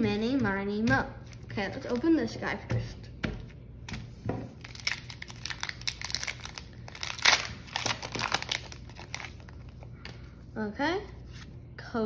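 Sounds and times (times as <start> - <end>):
foil wrapper crinkling and tearing: 4.6 - 9.8.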